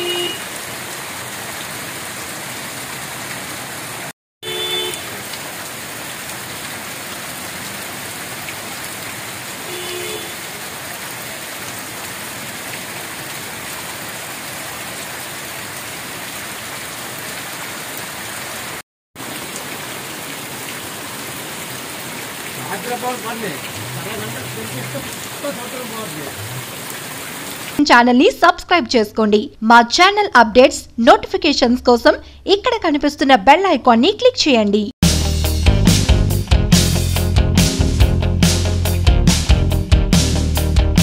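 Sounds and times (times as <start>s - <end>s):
vehicle horn: 0.0s - 0.5s, 4.4s - 5.2s, 9.6s - 10.5s
heavy rain on street: 0.0s - 27.8s.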